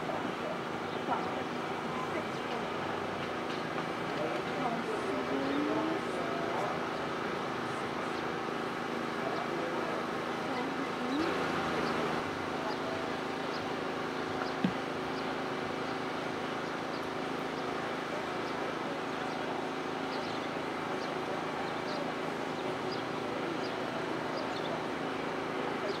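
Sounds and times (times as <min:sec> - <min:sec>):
short knock: 0:14.6 - 0:14.8.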